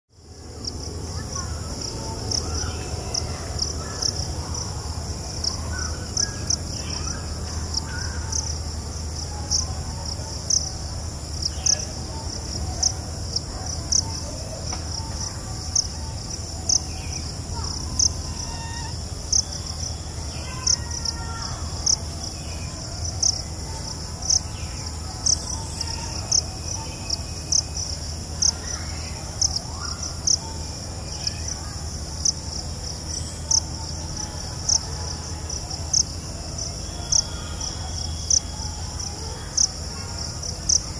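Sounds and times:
insect chorus trilling: 0.2 - 40.9
faint bird calls: 13.9 - 31.8.

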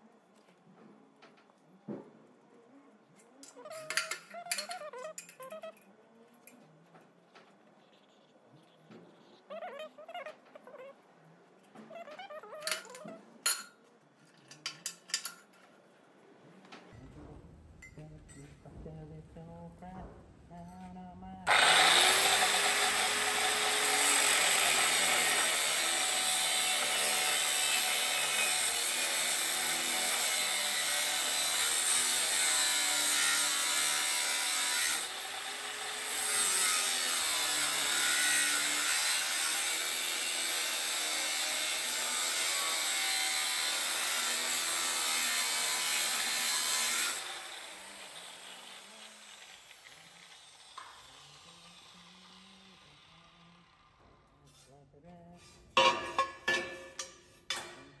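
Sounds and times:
angle grinder cutting steel: 21.5 - 54.3.

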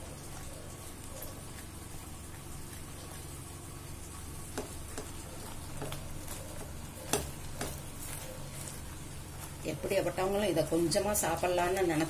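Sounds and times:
faint sizzle: 0.0 - 12.0
spatula stirring thick paste: 4.4 - 10.5.

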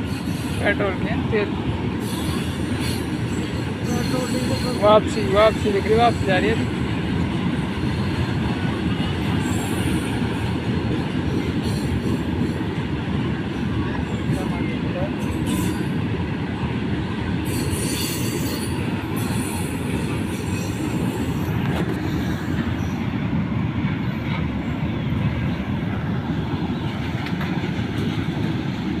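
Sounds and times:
train wheels rumbling on rails: 0.0 - 29.0.

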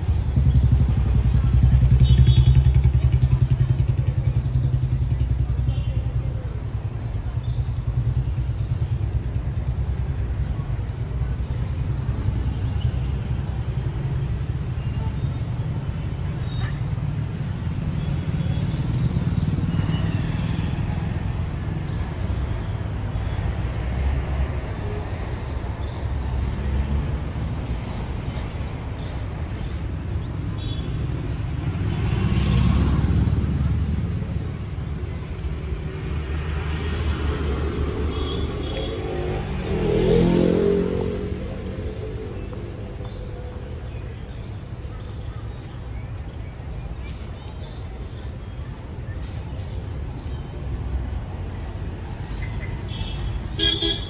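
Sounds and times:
passing vehicles rumble: 0.0 - 54.0.

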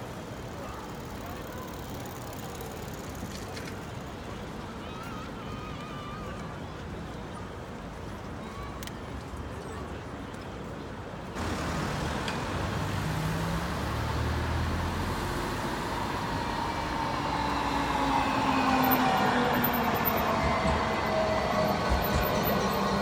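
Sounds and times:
faint whine of tram drive: 0.0 - 23.0
tram wheels rumbling on rails: 11.4 - 23.0.

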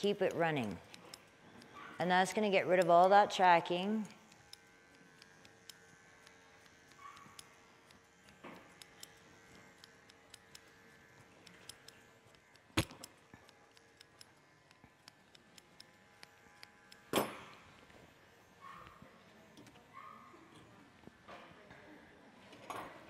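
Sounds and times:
scissors snipping: 0.0 - 17.8.

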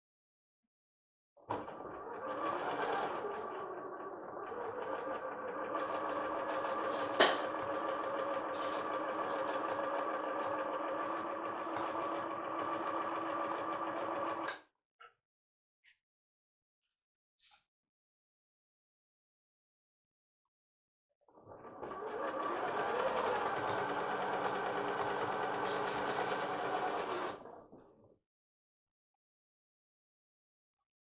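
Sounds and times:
sewing machine stitching: 1.5 - 14.6, 21.4 - 27.8.

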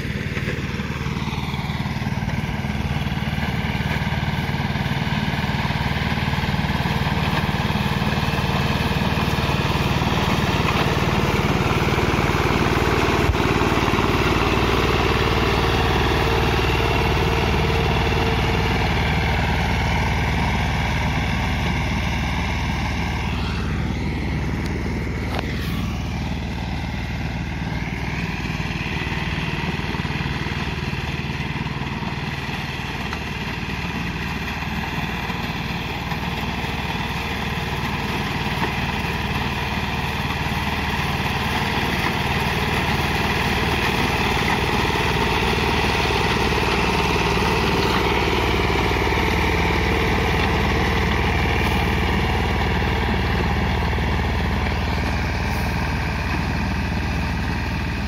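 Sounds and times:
engine running under load: 0.0 - 58.0.

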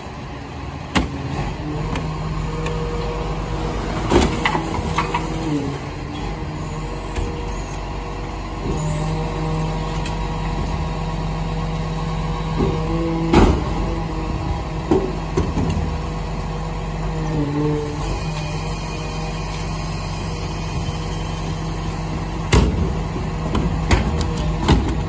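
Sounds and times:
garbage truck engine running: 0.0 - 25.0.

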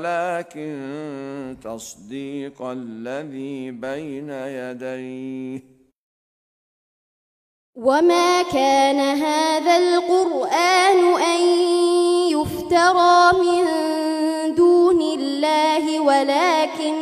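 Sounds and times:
girl reciting melodically: 7.8 - 17.0.

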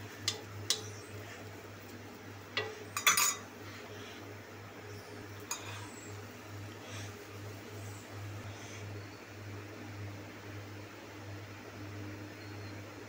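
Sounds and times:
low steady hum: 0.0 - 10.6
spoon clinking on griddle: 0.2 - 1.0, 2.5 - 3.5, 5.4 - 5.9.

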